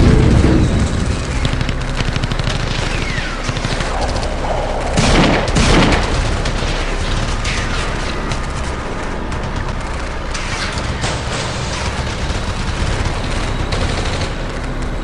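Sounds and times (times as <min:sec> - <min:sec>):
explosion rumble: 0:00.0 - 0:07.5
loud gunshots: 0:00.0 - 0:08.8
rapid gunfire crackle: 0:00.0 - 0:15.0.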